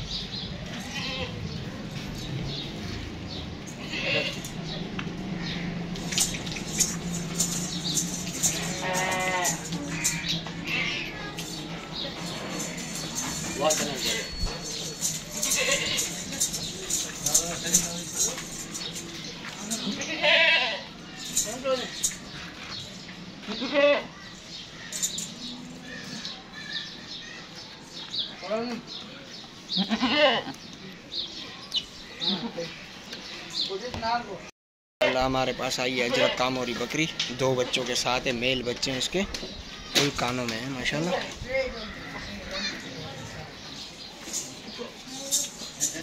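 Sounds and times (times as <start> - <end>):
animal pen noise: 0.0 - 46.0
goat bleating: 0.7 - 1.4, 3.8 - 4.5, 8.4 - 11.4, 15.4 - 16.2, 19.6 - 20.9, 23.5 - 24.1, 29.7 - 30.6.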